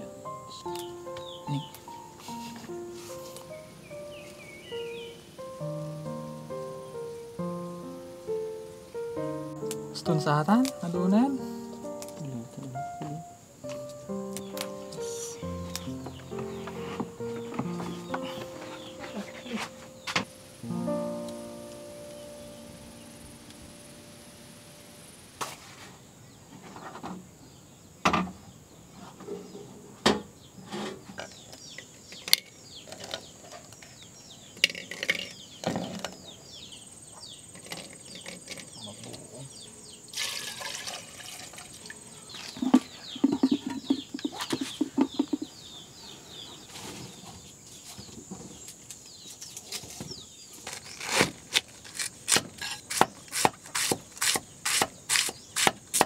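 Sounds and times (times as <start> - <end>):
birds chirping: 0.0 - 25.4, 26.3 - 51.1, 52.6 - 55.9
cleaver chopping on wooden block: 52.3 - 56.0.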